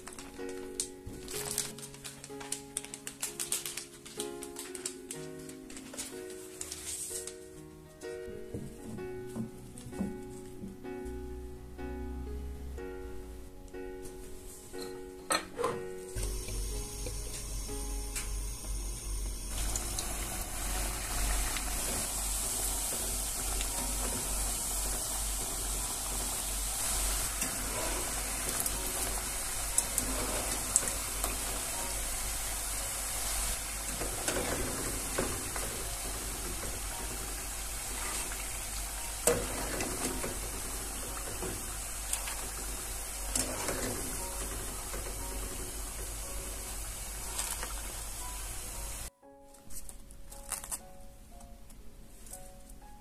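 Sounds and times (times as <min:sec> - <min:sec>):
potato sticks sizzling in oil: 0:00.0 - 0:07.3, 0:16.2 - 0:49.1.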